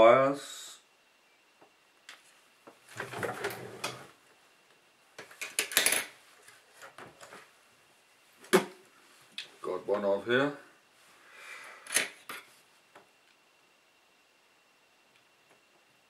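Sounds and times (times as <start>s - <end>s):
rustling and clatter of small tools: 2.1s - 4.1s, 5.2s - 7.5s.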